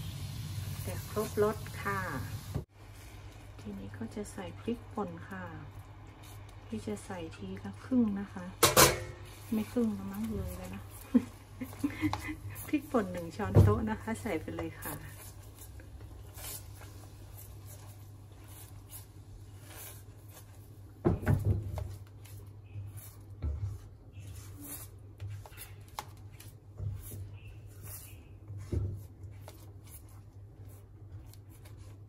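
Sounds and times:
spatula scraping a pan: 8.8 - 32.0.

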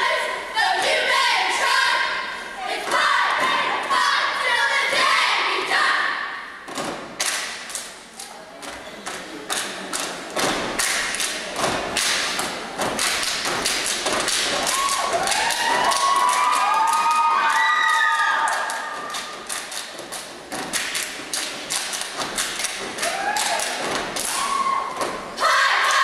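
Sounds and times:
people clapping: 7.2 - 26.0.

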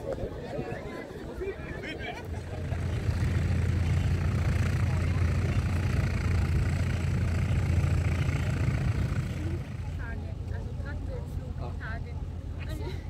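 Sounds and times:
engine running steadily: 1.7 - 13.0.

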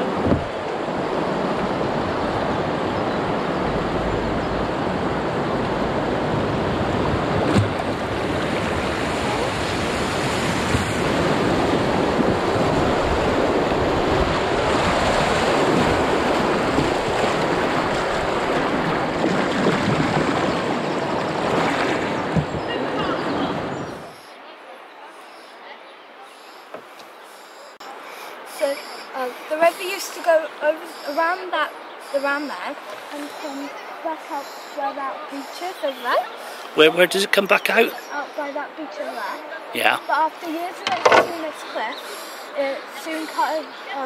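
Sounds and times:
whitewater rushing: 0.0 - 24.2
wind on microphone: 0.0 - 24.3.

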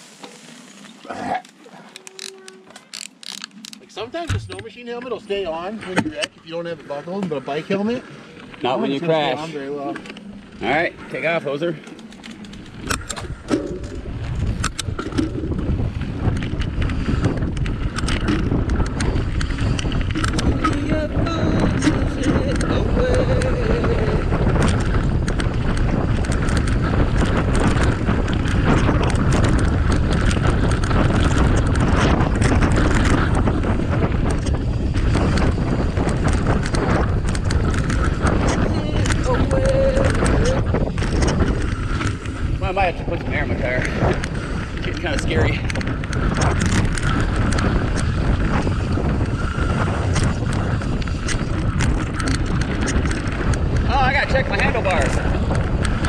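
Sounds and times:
bike rattling over bumps: 2.3 - 56.0
wind buffeting microphone: 3.0 - 56.0.

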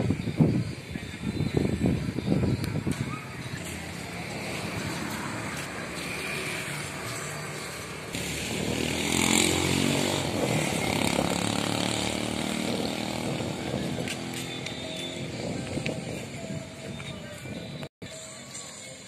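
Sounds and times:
small petrol engine running: 8.1 - 13.7.

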